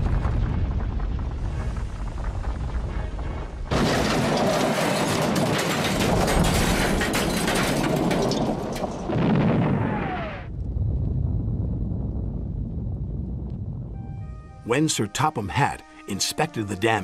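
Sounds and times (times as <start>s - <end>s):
low rumble: 0.0s - 4.6s, 6.0s - 14.6s
explosion with crackling debris: 0.0s - 14.0s.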